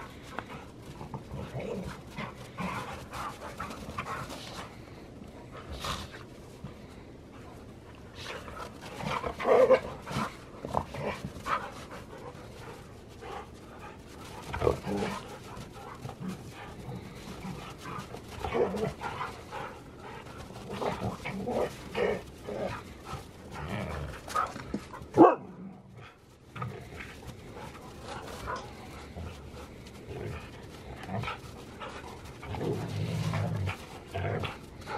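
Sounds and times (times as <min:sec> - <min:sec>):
dogs play-fighting and vocalizing: 0:00.0 - 0:34.9.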